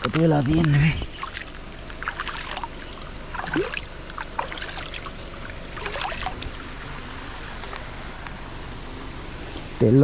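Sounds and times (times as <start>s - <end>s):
water running and splashing: 1.1s - 6.8s.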